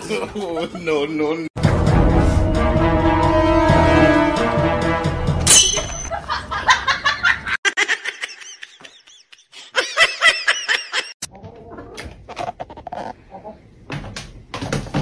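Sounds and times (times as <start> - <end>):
person laughing: 6.1 - 11.2.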